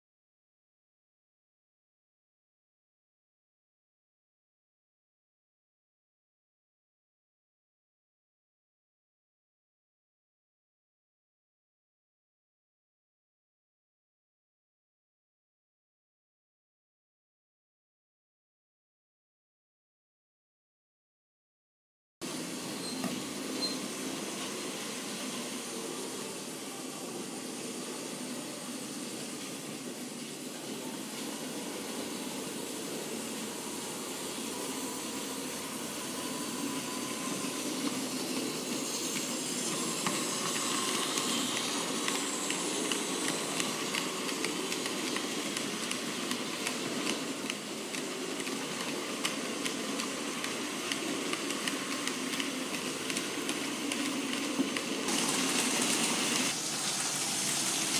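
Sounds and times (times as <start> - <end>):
model train running hiss: 22.2 - 57.9
wheels clicking over rail joints: 35.1 - 57.9.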